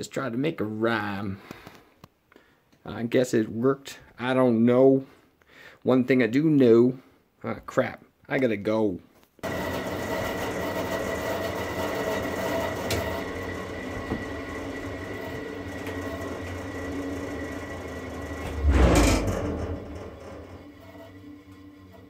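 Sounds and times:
bandsaw motor hum with whine: 9.4 - 22.0
loud low rumble: 18.4 - 20.6.

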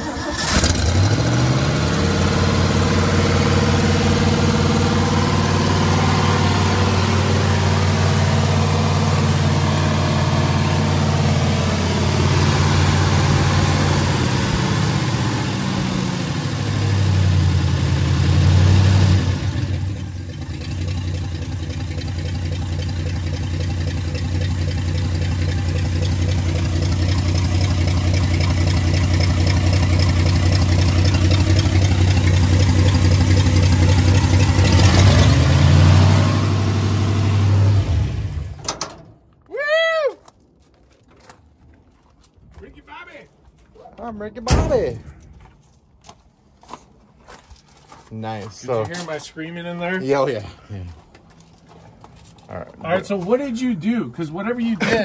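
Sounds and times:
car engine idling: 0.0 - 39.1.

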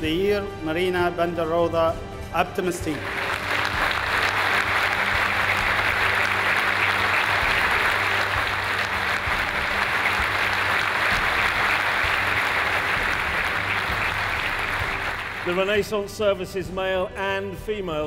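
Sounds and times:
audience applauding: 2.8 - 15.9.

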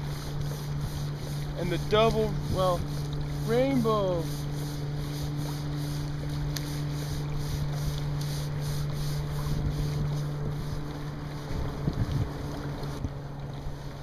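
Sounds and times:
steady low hum: 0.0 - 14.0
wind buffeting microphone: 0.7 - 3.4, 9.2 - 14.0.

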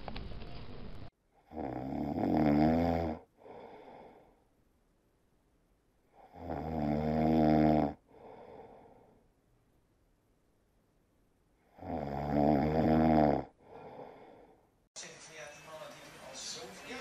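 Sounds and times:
cat snoring: 1.4 - 4.3, 6.1 - 8.9, 11.7 - 14.5.

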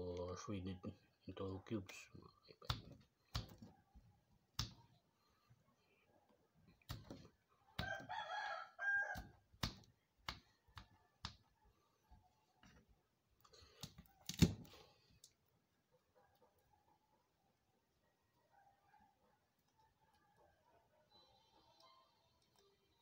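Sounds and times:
rooster crowing: 7.8 - 9.4.

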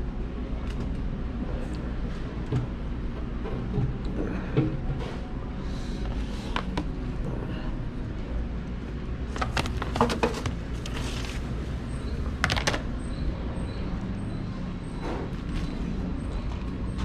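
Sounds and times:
low room hum: 0.0 - 17.0
plastic trays clacking: 9.3 - 11.3, 12.4 - 12.9.

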